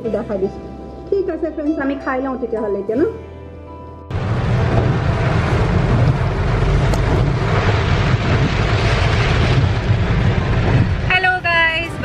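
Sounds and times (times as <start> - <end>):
heavy rain on a car: 4.1 - 12.0
tyres rumbling on wet road: 4.1 - 12.0.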